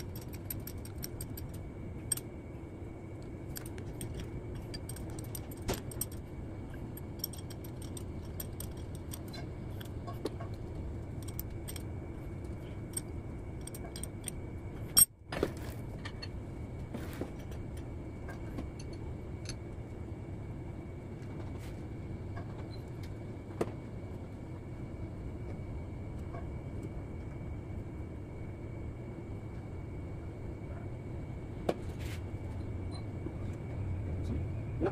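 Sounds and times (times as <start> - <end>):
bolts and tools clinking: 0.0 - 2.3, 3.5 - 10.1, 11.1 - 16.3
workshop hum: 0.0 - 34.9.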